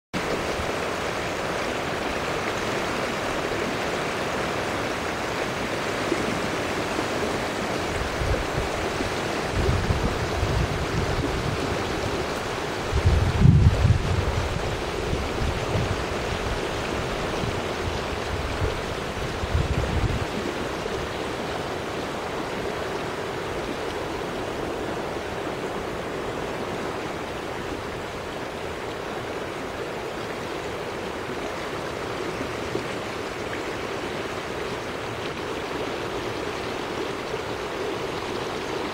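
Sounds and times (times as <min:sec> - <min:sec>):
floodwater rushing: 0:00.2 - 0:38.9
wind rumble on microphone: 0:05.6 - 0:28.9.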